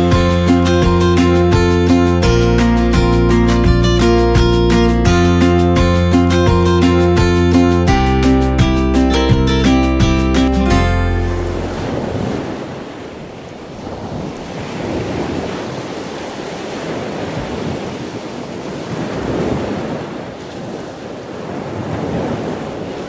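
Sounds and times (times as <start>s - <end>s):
ocean surf washing ashore: 0.0s - 23.0s.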